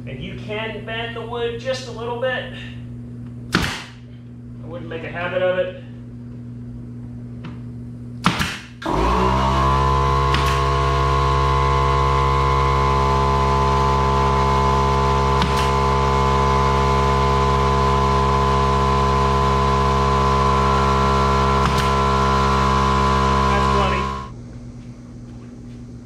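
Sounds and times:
air compressor motor running: 5.6s - 24.4s.

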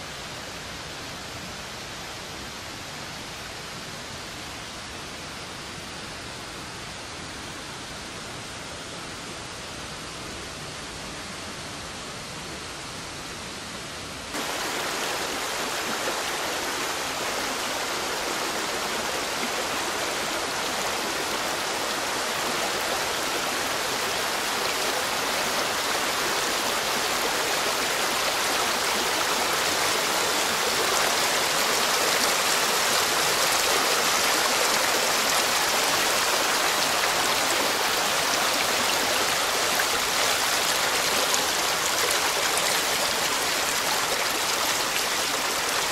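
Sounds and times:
torrent water rushing: 14.3s - 45.9s.

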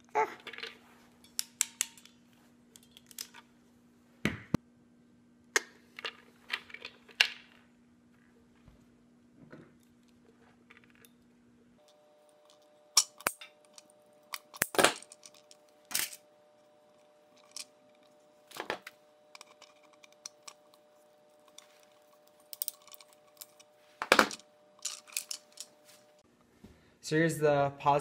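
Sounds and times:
faint steady hum: 0.0s - 28.0s.

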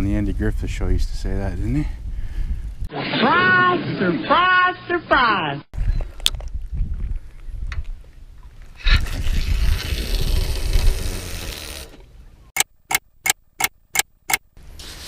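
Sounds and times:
wind buffeting microphone: 0.0s - 2.9s, 5.8s - 11.4s
sharp clicks: 12.6s - 14.5s.

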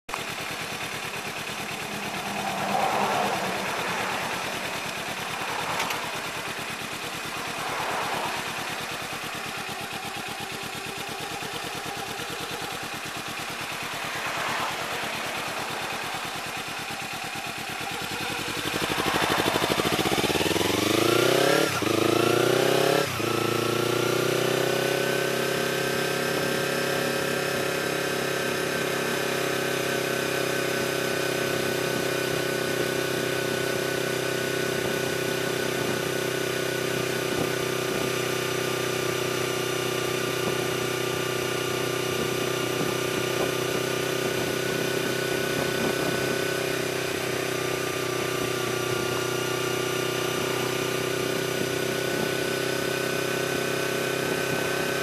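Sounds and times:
gear changes: 0.1s - 22.4s
motorcycle engine: 0.1s - 55.0s
wind and road noise: 0.1s - 55.0s.

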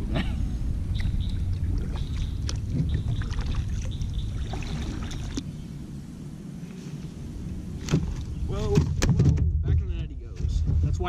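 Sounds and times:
paddle splashing in water: 1.0s - 5.4s, 7.8s - 9.0s.

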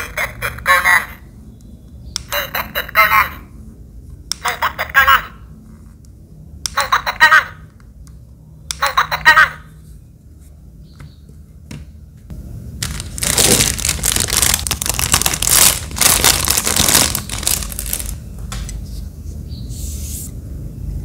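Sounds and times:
plastic bag crinkling: 12.8s - 18.3s.

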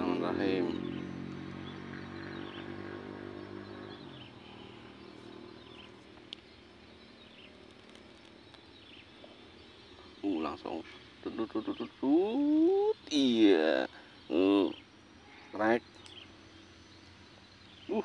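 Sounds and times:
bird chirping: 0.0s - 18.0s
distant vehicle engine hum: 0.0s - 18.0s.

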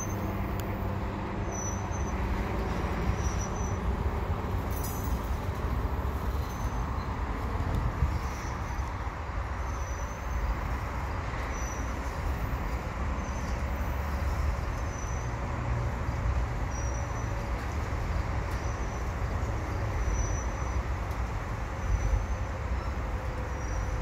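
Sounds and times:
steel wheels rumbling on track: 0.0s - 24.0s
faint high squeaks: 1.4s - 3.9s, 9.6s - 10.5s, 16.7s - 17.8s.

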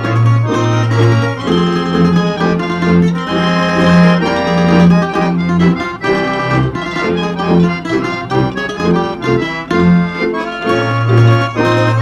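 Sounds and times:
accordion playing folk tune: 0.0s - 12.0s.

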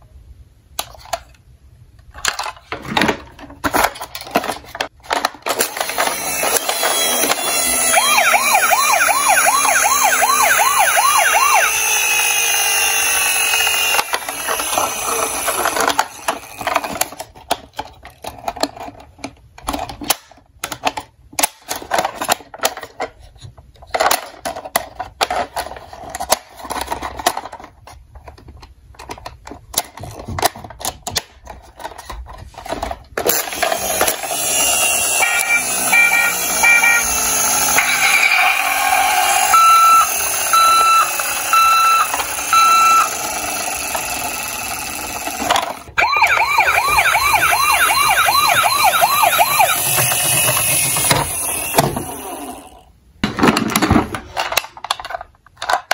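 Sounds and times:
toy electronic siren: 5.9s - 16.7s, 33.6s - 52.6s.

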